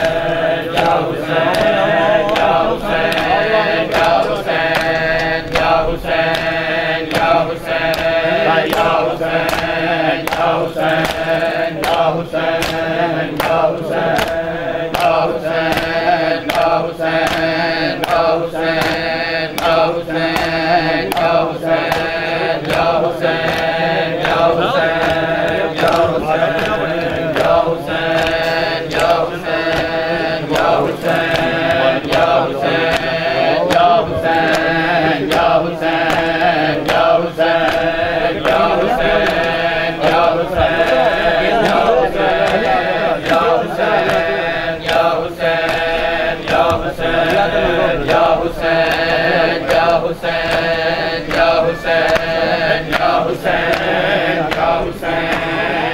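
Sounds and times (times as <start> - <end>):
hands slapping bare chests: 0.0 - 55.8
men chanting: 0.0 - 55.9.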